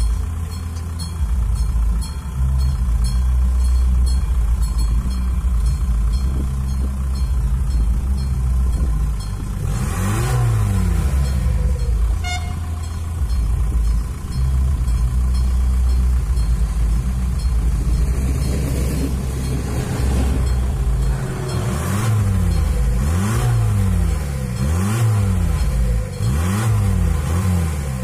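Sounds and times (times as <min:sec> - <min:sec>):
railcar engine drone: 0:00.0 - 0:28.0
railcar passing by: 0:00.0 - 0:28.0
short tone: 0:11.3 - 0:13.6.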